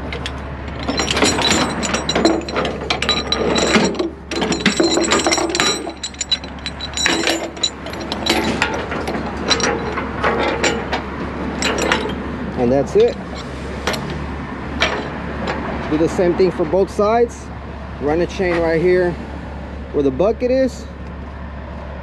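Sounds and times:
chain links clinking: 0.1s - 14.1s, 14.8s - 15.2s.

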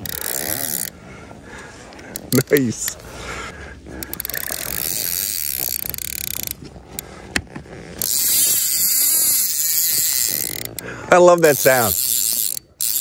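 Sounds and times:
fly reel drag ratcheting: 0.0s - 1.0s, 2.1s - 3.0s, 3.9s - 7.1s, 7.8s - 13.0s.

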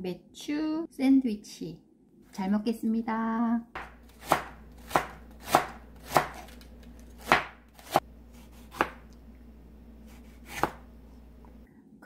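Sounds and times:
knife chopping on cutting board: 3.8s - 9.1s, 10.1s - 10.9s.

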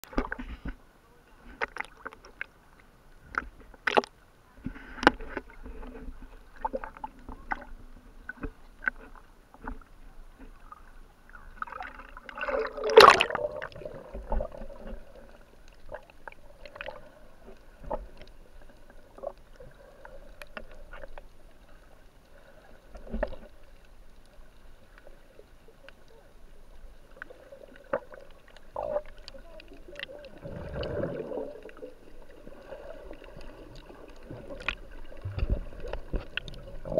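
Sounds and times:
muffled underwater water noise: 0.0s - 36.9s
bubbling water: 10.8s - 21.3s, 27.0s - 36.9s
rush of bubbles or splashing: 11.6s - 17.3s, 30.0s - 36.9s.

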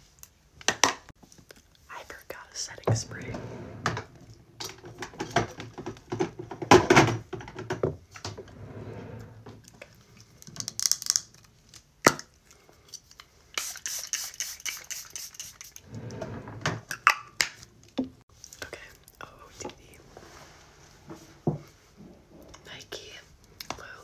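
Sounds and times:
spray bottle misting: 13.6s - 15.8s.

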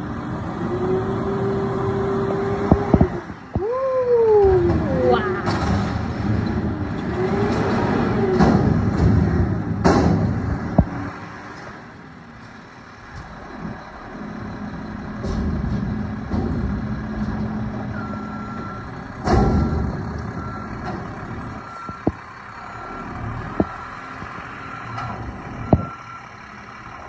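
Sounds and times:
garbage truck engine and hydraulics: 0.0s - 27.0s
reversing alarm beeping: 17.9s - 27.0s.

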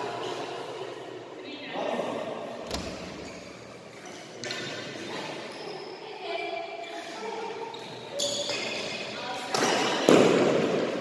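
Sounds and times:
shoes squeaking on court floor: 2.8s - 10.0s.

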